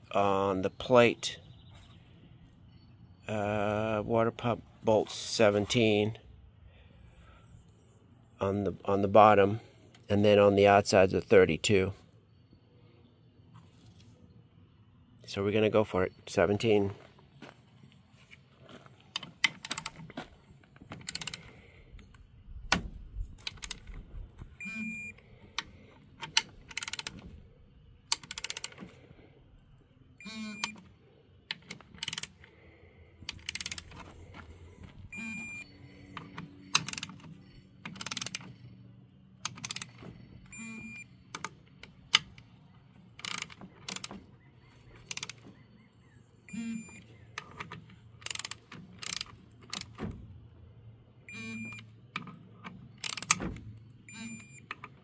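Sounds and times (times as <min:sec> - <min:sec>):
metal clicks and clanks: 0:19.0 - 0:27.4, 0:28.0 - 0:29.0, 0:30.6 - 0:32.6, 0:33.2 - 0:38.8, 0:39.4 - 0:40.6, 0:41.3 - 0:45.6, 0:46.9 - 0:50.3, 0:51.7 - 0:55.0
torque wrench ratcheting: 0:19.4 - 0:20.0, 0:21.0 - 0:21.5, 0:26.3 - 0:27.2, 0:28.1 - 0:28.9, 0:31.6 - 0:32.5, 0:33.3 - 0:34.0, 0:36.2 - 0:37.2, 0:37.8 - 0:38.5, 0:39.4 - 0:40.0, 0:43.2 - 0:44.1, 0:45.0 - 0:45.4, 0:48.2 - 0:50.0, 0:53.0 - 0:53.4.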